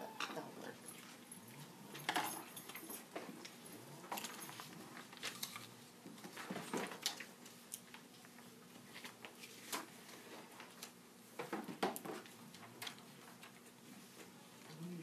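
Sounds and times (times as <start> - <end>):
faint steady hum: 0.0 - 15.0
paper rustling and shuffling: 4.3 - 14.3.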